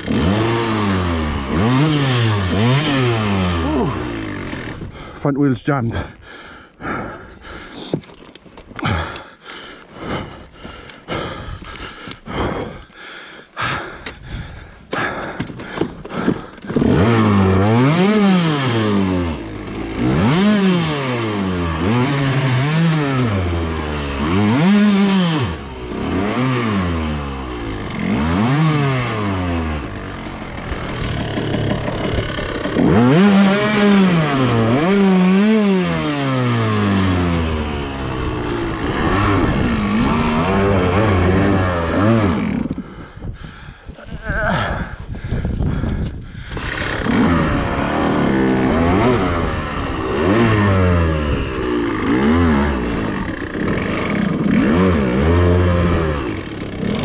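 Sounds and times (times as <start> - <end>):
dirt bike engine revving: 0.0 - 5.2, 16.1 - 42.9, 46.4 - 57.0
branches cracking and scraping: 7.8 - 9.6, 11.6 - 13.0, 27.4 - 42.8.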